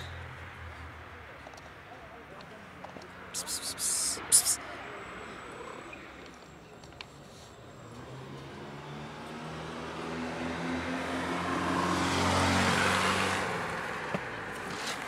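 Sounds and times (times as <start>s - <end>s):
car driving past: 7.8s - 14.4s.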